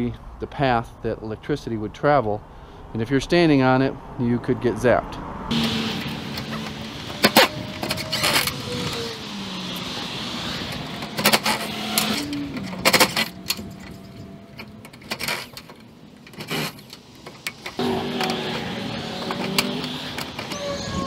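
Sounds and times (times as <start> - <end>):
metal clicks and clanks: 5.6 - 9.0, 10.7 - 21.0.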